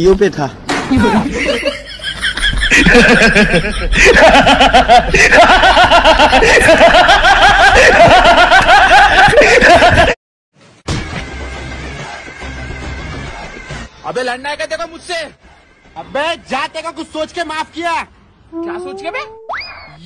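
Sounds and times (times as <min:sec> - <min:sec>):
man laughing loudly: 0:00.9 - 0:10.2.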